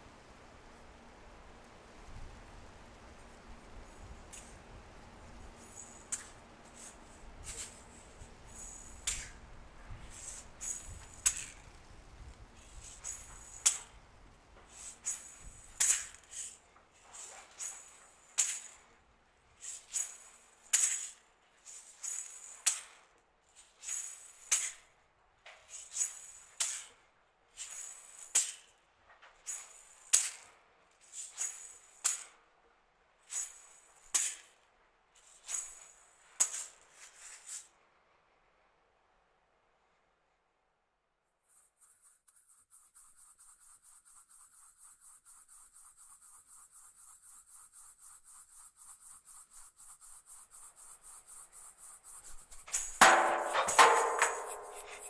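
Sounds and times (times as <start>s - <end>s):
dry shaker-like rattling: 3.1s - 14.0s, 14.6s - 19.0s, 19.6s - 24.9s, 25.6s - 26.9s, 29.4s - 32.4s, 41.5s - 55.0s.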